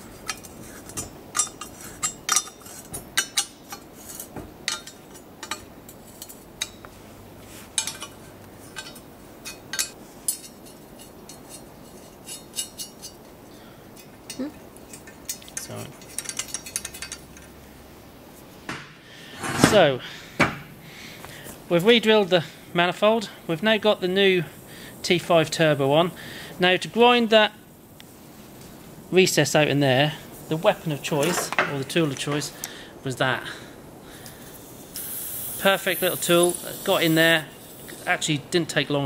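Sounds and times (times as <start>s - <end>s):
spanner clinking on nuts: 0.2s - 6.8s, 7.8s - 13.2s, 14.0s - 17.5s.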